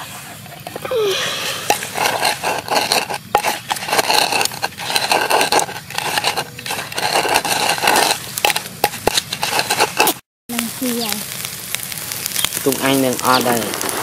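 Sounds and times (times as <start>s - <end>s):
wooden pestle grinding in clay mortar: 0.3s - 10.2s.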